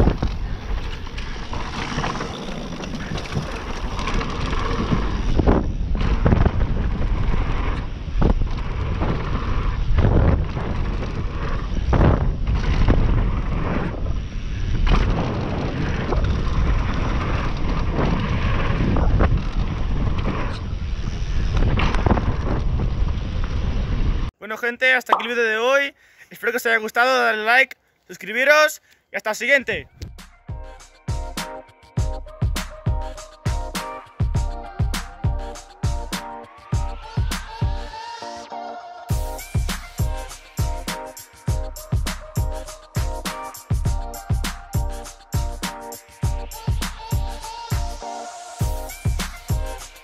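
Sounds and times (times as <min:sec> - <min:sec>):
bike rattling and knocking: 0:00.0 - 0:20.5
wind rushing on microphone: 0:00.0 - 0:24.3.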